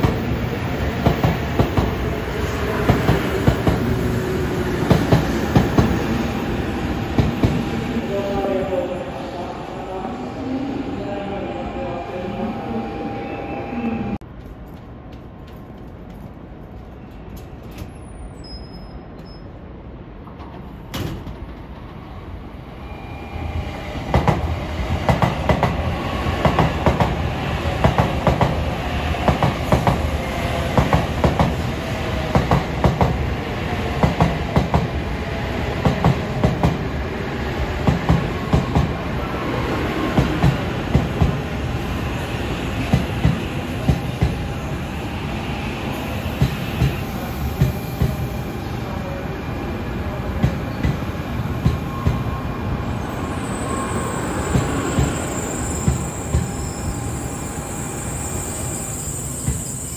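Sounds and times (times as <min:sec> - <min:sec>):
high-speed train rumble: 0:00.0 - 0:18.2, 0:19.6 - 0:59.9
wheels clickety-clack on rail joints: 0:14.2 - 0:18.2.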